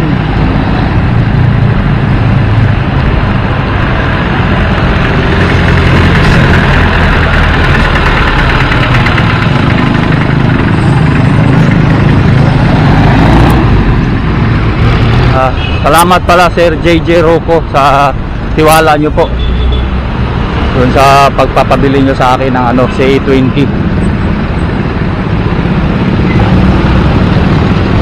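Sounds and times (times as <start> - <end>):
vehicle engine running: 0.0 - 18.8
road noise: 0.0 - 28.0.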